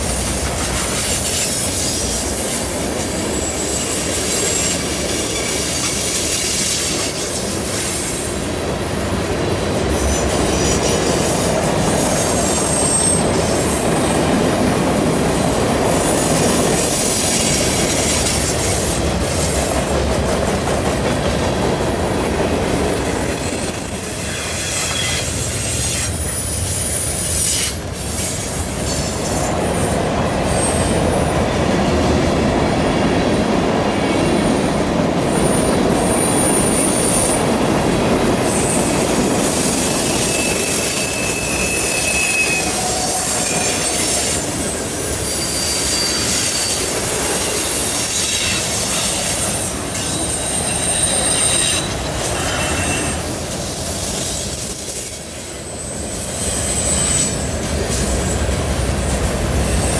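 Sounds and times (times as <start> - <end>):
steel wheels rumbling on rail: 0.0 - 59.9
high-pitched wheel squeal: 3.1 - 8.2, 10.0 - 13.9, 21.4 - 29.9, 38.4 - 58.4.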